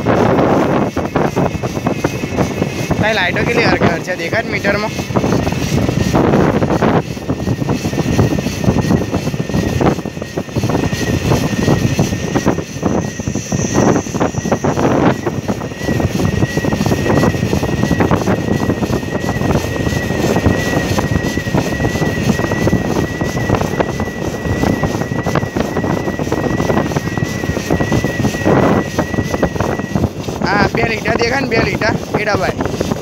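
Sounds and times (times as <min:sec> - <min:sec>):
electric motor whining: 0:00.0 - 0:33.0
wind noise on microphone: 0:00.0 - 0:33.0.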